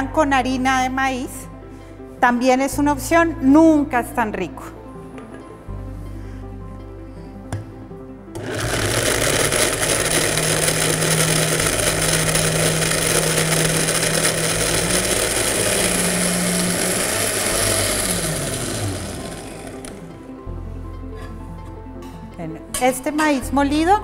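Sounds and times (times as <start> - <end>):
blender grinding: 8.4 - 20.2.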